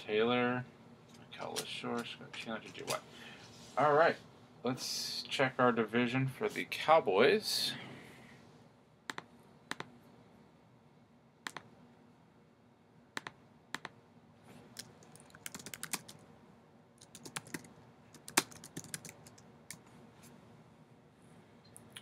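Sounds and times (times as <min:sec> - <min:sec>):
computer keyboard typing: 0:14.7 - 0:16.2, 0:17.0 - 0:19.8.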